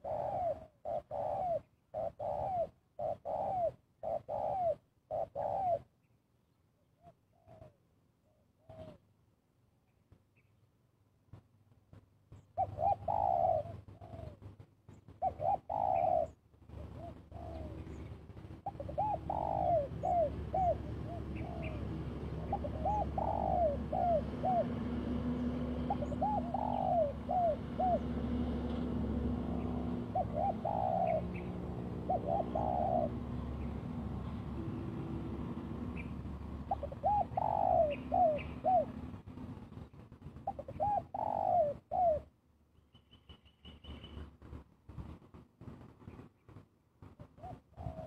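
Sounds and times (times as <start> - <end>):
dove cooing: 0.0 - 5.9, 7.0 - 9.1, 12.6 - 39.3, 40.4 - 42.4, 47.2 - 48.0.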